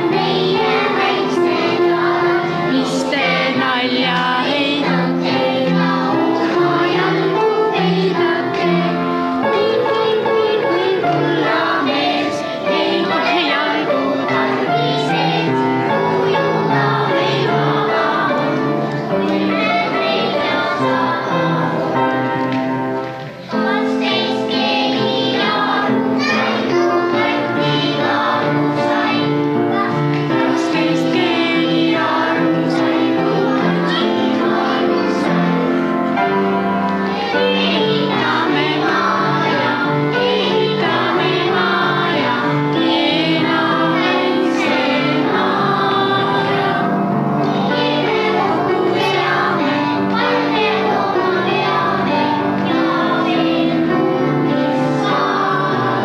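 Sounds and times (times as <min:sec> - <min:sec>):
children singing: 0:00.0 - 0:56.0
musical accompaniment: 0:00.0 - 0:56.0.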